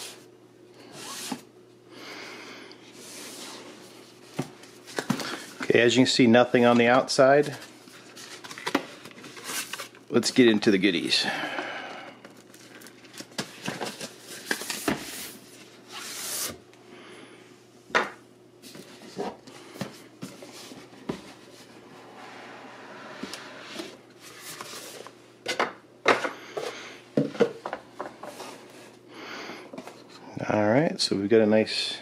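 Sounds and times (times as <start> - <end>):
box sliding out of sleeve: 22.0 - 25.1.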